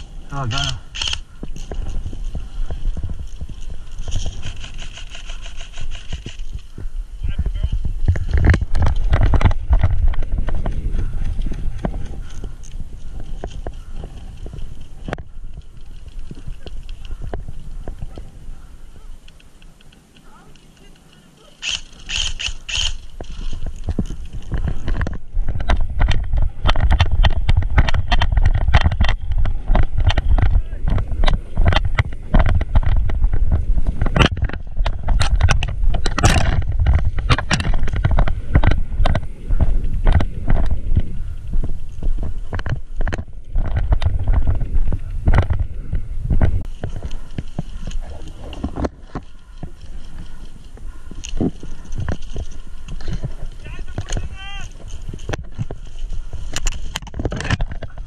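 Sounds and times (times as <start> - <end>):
wind rumble on microphone: 0.0 - 20.4, 21.6 - 58.0
brush rustling: 0.0 - 58.0
sharp clicks and knocks: 19.2 - 33.2, 33.8 - 39.3, 46.3 - 58.0.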